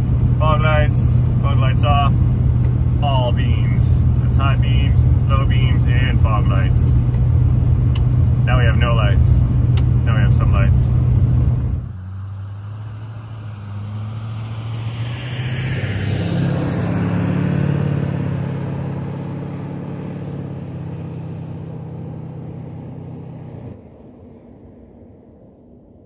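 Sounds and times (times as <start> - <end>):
truck driving past: 10.8 - 25.0
faint insect trill: 20.8 - 26.0.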